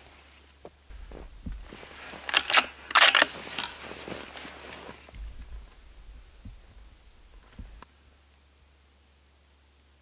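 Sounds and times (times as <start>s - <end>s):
gear rustling and rattling: 0.9s - 7.8s.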